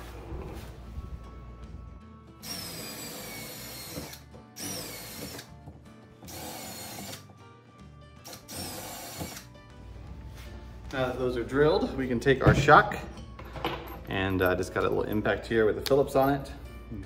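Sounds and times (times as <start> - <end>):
power drill drilling steel: 2.4 - 5.5, 6.3 - 7.2, 8.3 - 9.4.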